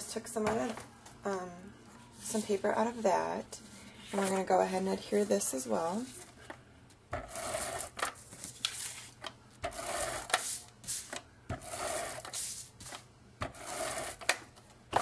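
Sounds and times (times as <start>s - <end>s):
tape runner rasping whir: 13.5s - 14.4s.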